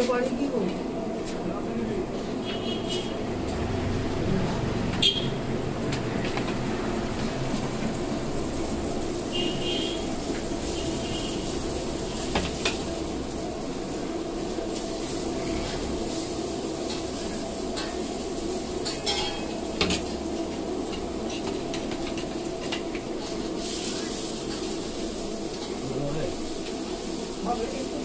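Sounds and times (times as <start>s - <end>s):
steady background hum: 0.0s - 28.0s
metal spoon clinking on bowls: 18.8s - 19.6s.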